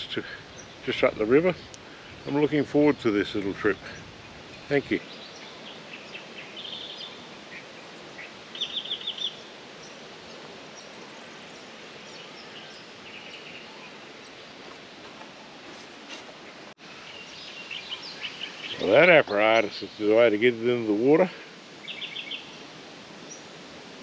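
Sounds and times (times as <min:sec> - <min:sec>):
outdoor background hiss: 0:00.0 - 0:24.0
bird chirps: 0:03.7 - 0:14.8, 0:16.4 - 0:20.2, 0:21.8 - 0:22.6.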